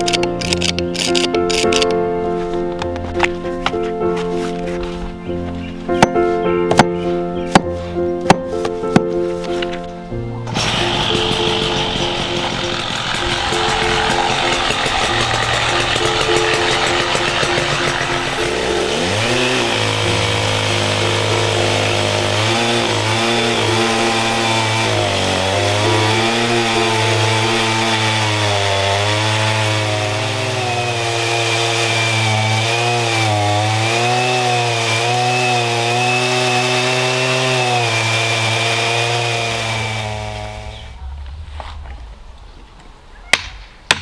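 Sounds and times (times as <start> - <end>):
chainsaw cutting through log: 10.5 - 41.0.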